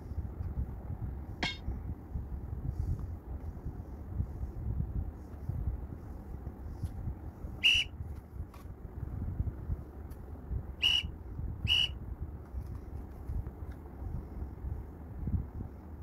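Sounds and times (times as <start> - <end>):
referee whistle blasts: 7.6 - 7.9, 10.8 - 11.1, 11.7 - 12.0.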